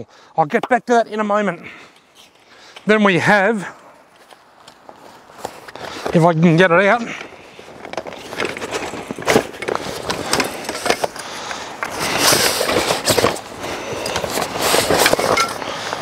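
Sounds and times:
canvas bag rustling and scraping: 3.8s - 16.0s
metal parts knocking and clicking: 14.1s - 15.6s.

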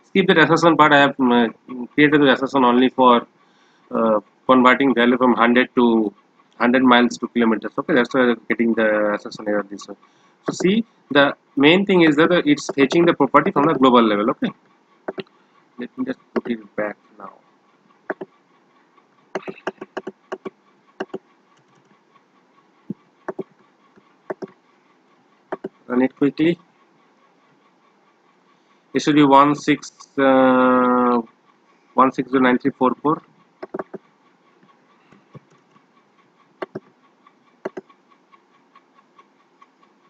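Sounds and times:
keyboard and mouse clicking: 10.5s - 10.8s, 12.6s - 13.8s, 15.1s - 15.3s, 16.3s - 16.6s, 18.1s - 18.3s, 19.4s - 21.9s, 23.3s - 23.5s, 24.3s - 24.6s, 25.5s - 25.8s, 33.6s - 34.0s, 36.6s - 36.9s, 37.6s - 37.9s.

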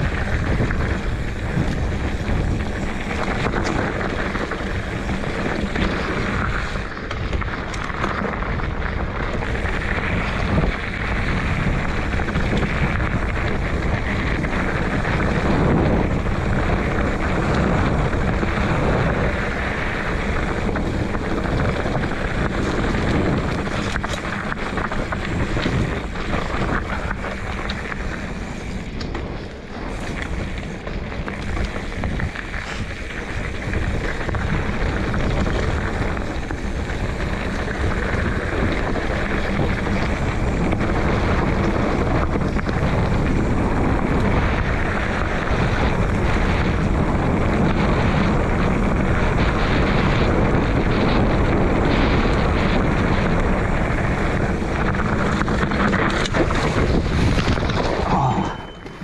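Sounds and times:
wind rushing over microphone: 0.0s - 59.0s
low uneven rumble: 52.0s - 59.0s.

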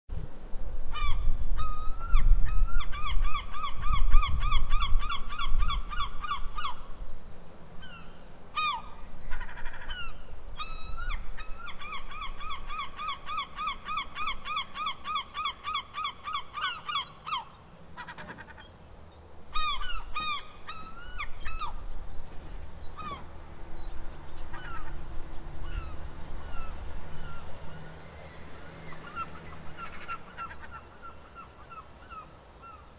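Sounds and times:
seagulls squawking: 8.6s - 18.8s, 19.5s - 21.8s, 22.9s - 23.3s, 24.0s - 27.9s, 28.9s - 32.9s.

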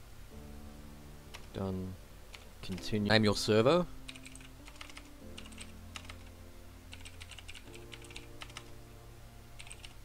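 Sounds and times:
quiet background music chords: 0.0s - 10.0s
typing on computer keyboard: 4.1s - 6.3s, 6.9s - 8.7s, 9.6s - 10.0s.

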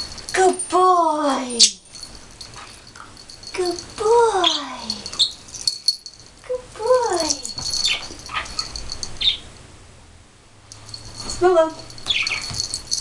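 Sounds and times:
puppy yelping: 7.7s - 9.4s.

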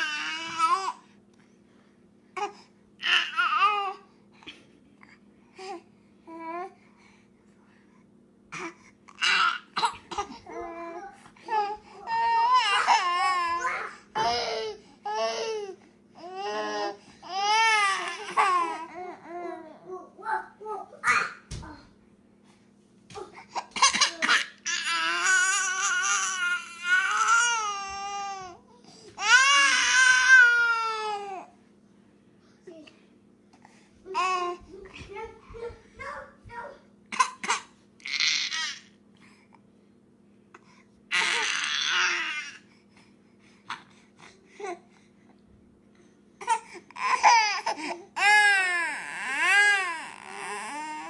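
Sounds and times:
baby crying: 12.1s - 19.6s, 23.9s - 28.6s, 29.2s - 31.4s, 41.1s - 42.6s, 46.4s - 51.0s.

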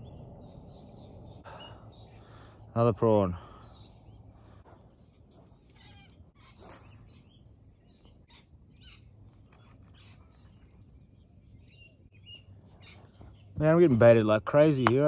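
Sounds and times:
faint birds chirping: 0.0s - 15.0s
fishing rod cast swish: 6.5s - 7.1s.

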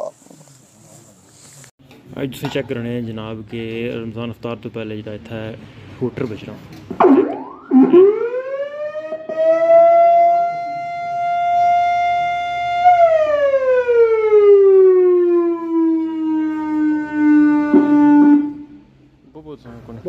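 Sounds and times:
siren tone sliding down: 7.0s - 18.8s.

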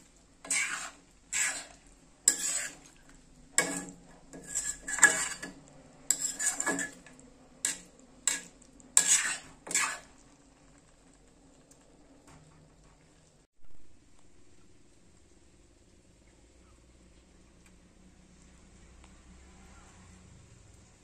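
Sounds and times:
metal spoon scraping a pot: 0.4s - 10.2s.

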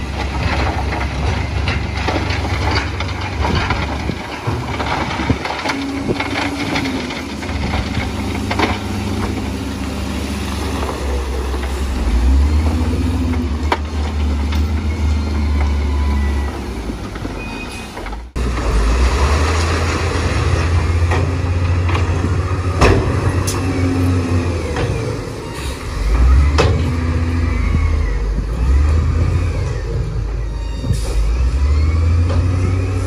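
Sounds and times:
metal clanks and knocks: 0.0s - 9.6s, 20.5s - 23.7s
diesel engine rumble: 0.0s - 33.0s.

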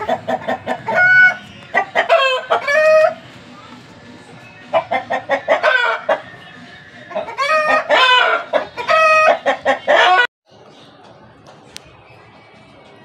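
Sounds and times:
rooster crowing: 2.0s - 3.2s, 7.2s - 10.3s.

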